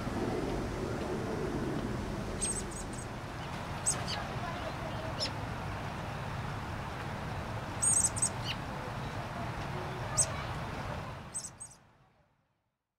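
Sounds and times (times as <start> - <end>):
fledglings squeaky begging calls: 2.4 - 3.0, 3.8 - 4.3, 7.8 - 8.6, 11.3 - 11.8.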